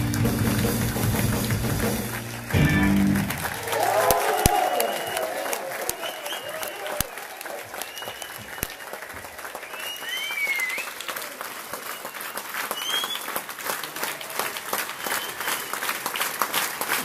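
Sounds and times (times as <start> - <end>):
audience clapping: 0.0 - 17.0
crowd whistles: 1.9 - 11.2, 11.8 - 13.4, 14.9 - 16.0.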